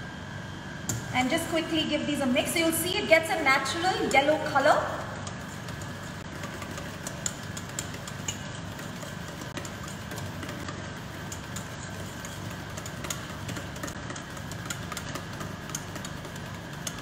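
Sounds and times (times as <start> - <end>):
whisk clicking against metal bowl: 3.6 - 17.0.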